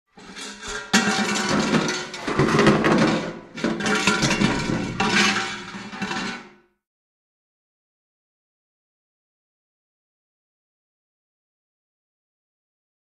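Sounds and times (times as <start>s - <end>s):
metal objects clattering and crashing: 0.1s - 6.6s.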